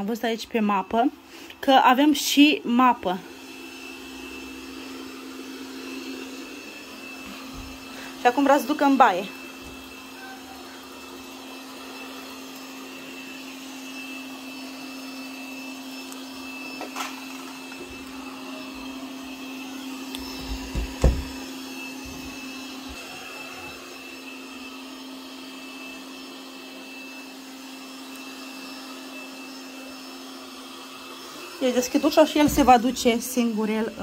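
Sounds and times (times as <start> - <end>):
robot vacuum motor whine: 0.0 - 34.0
vacuum knocking into door: 20.4 - 21.5.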